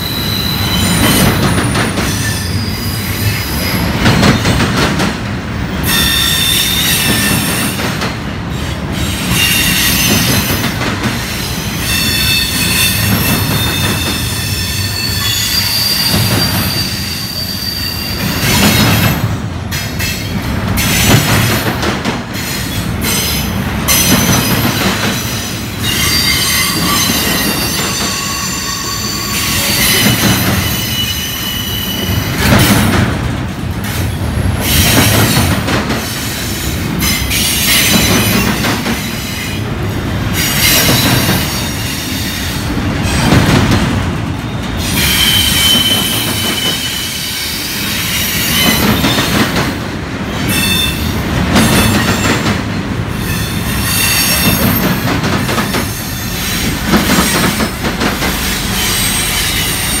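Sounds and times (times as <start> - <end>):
train wheels rumbling on rail: 0.0 - 60.0
high-pitched wheel squeals: 11.7 - 18.4, 25.8 - 32.2.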